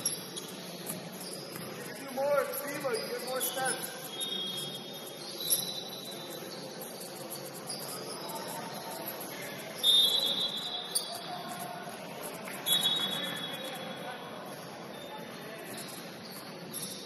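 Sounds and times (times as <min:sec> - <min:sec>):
sneakers squeaking on court: 0:00.0 - 0:08.9, 0:14.9 - 0:17.0
referee's whistle: 0:02.8 - 0:06.4, 0:09.8 - 0:11.3, 0:12.6 - 0:13.8.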